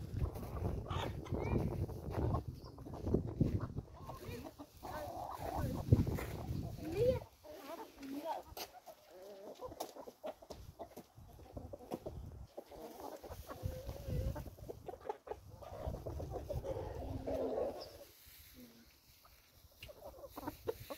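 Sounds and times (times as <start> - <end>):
chickens clucking: 0.0 - 20.9.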